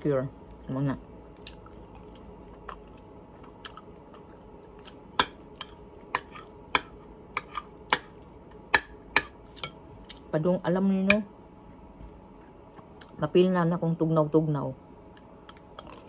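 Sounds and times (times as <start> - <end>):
person chewing noodles: 1.3 - 6.6, 15.1 - 16.0.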